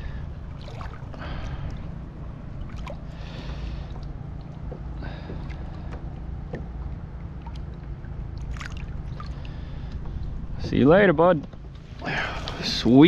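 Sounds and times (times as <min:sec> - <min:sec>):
low steady rumble: 0:00.0 - 0:13.0
water splashing against a kayak: 0:00.5 - 0:10.5.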